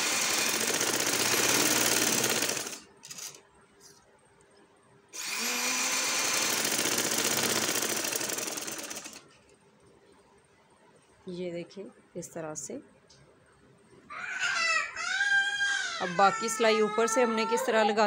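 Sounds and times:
sewing machine stitching: 0:00.0 - 0:03.4, 0:05.2 - 0:09.2.

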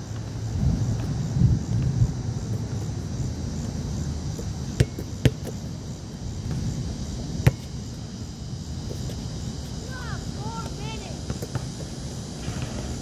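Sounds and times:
basketball thuds: 0:04.8 - 0:05.6.

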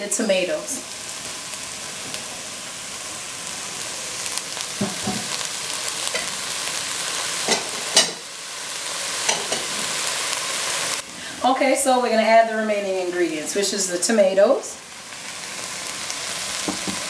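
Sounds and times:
vegetables sizzling in a pot: 0:00.0 - 0:17.0
wooden spoon knocking on a pot: 0:16.7 - 0:17.0.

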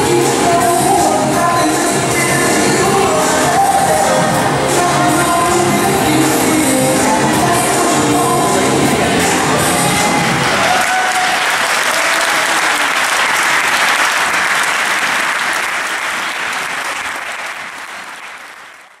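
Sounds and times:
music: 0:00.0 - 0:10.8
audience applauding: 0:10.2 - 0:19.0.

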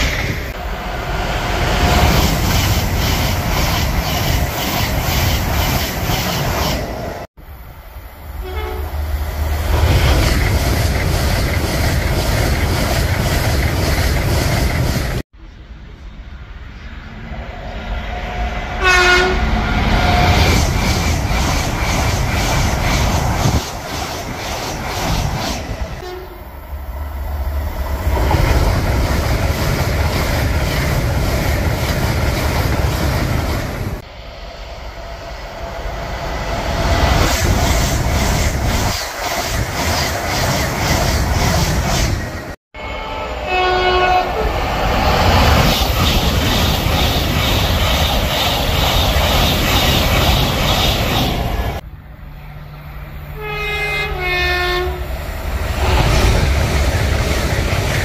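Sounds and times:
train rushing past: 0:00.0 - 0:58.0
train two-tone horn: 0:08.3 - 0:09.1, 0:18.6 - 0:20.4, 0:26.0 - 0:26.6, 0:42.8 - 0:44.6, 0:53.3 - 0:55.1
wheels clickety-clack: 0:09.8 - 0:15.2, 0:20.3 - 0:25.9, 0:45.5 - 0:51.8.

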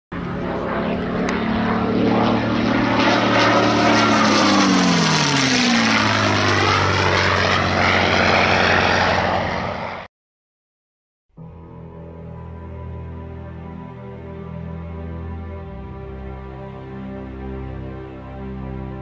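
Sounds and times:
propeller aircraft engine passing: 0:00.1 - 0:10.1, 0:11.4 - 0:19.0.

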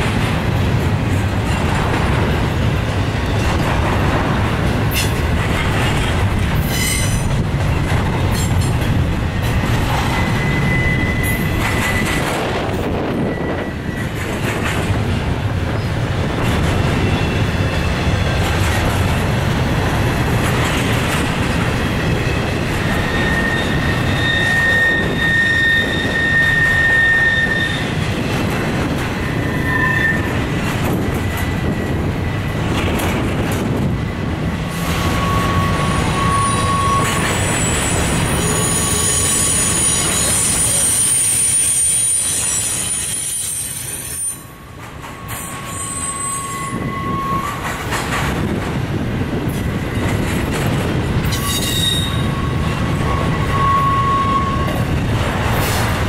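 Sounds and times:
train wheels rumbling on rail: 0:00.0 - 0:56.0
wheels squealing: 0:05.9 - 0:14.9, 0:20.6 - 0:33.0, 0:34.6 - 0:48.0, 0:51.2 - 0:55.9.

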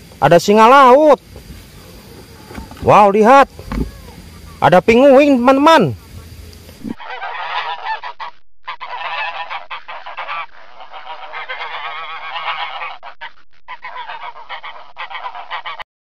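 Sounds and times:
penguins calling: 0:06.8 - 0:15.8.

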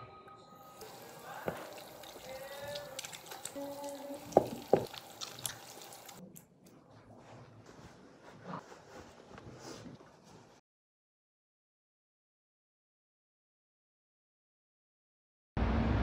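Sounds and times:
tap water running into sink: 0:00.8 - 0:06.2.

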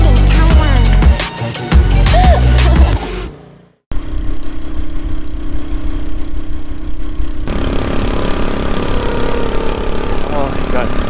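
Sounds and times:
vehicle engine drone: 0:02.6 - 0:11.0.

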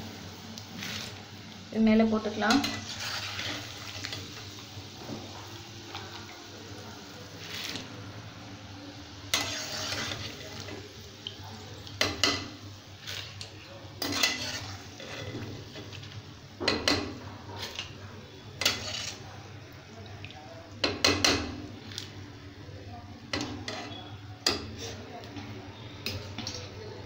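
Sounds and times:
oil sizzling: 0:00.0 - 0:26.9
metal ladle clanking on metal pan: 0:16.6 - 0:17.2, 0:20.8 - 0:21.6.

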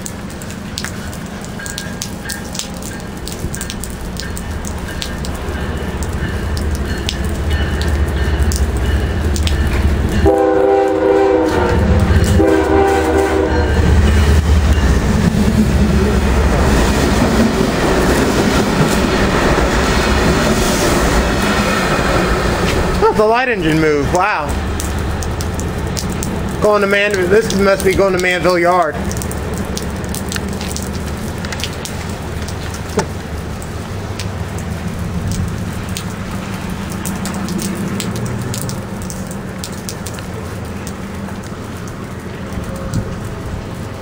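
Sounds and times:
diesel locomotives passing: 0:00.0 - 0:44.0
locomotive air horn blasts: 0:10.2 - 0:14.0.

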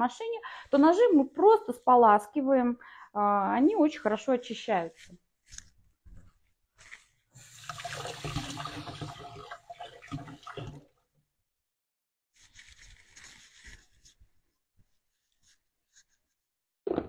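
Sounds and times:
water running from tap: 0:07.4 - 0:11.0.

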